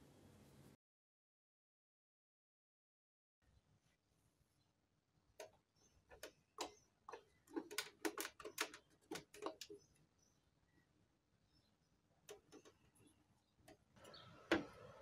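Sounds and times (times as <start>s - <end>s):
plastic clicks and knocks: 5.4s - 9.9s.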